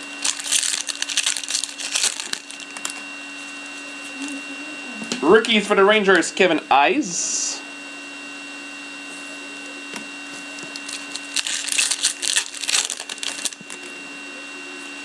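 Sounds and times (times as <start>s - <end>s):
foil wrapper tearing: 0.0s - 3.5s, 10.6s - 13.9s.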